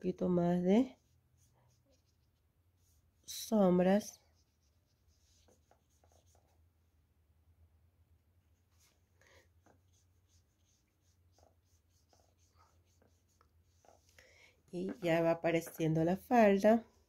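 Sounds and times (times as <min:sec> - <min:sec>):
paintbrush strokes on card: 0:00.7 - 0:06.7, 0:08.4 - 0:16.9.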